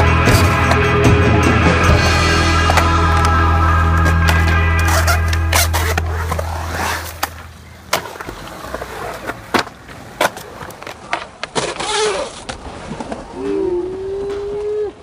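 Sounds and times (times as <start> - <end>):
skateboard wheels rolling on concrete: 2.0 - 15.0
skateboard clacking on concrete: 7.2 - 12.6.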